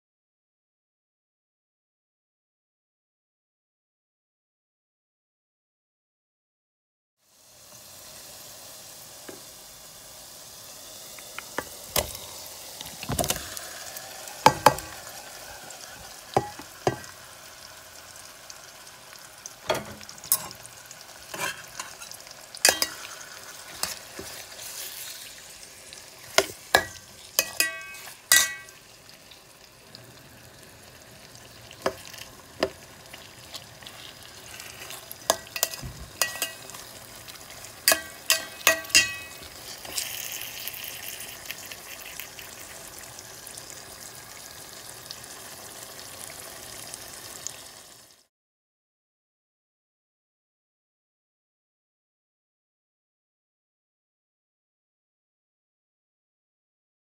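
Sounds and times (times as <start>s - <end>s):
food sizzling in oil: 7.2s - 48.3s
metal spoon scraping a pan: 11.4s - 13.6s, 14.4s - 17.1s, 19.6s - 29.0s, 31.8s - 41.4s.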